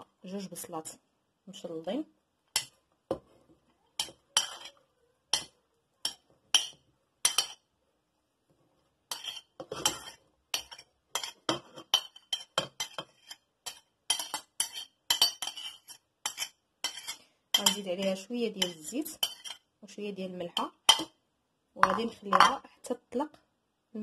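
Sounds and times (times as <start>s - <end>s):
spoon clinking and scraping plate: 4.0s - 7.7s, 9.1s - 19.7s, 21.8s - 22.6s.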